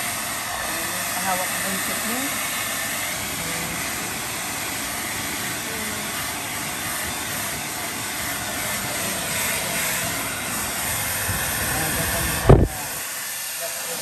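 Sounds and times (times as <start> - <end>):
blow dryer running: 0.0 - 14.0.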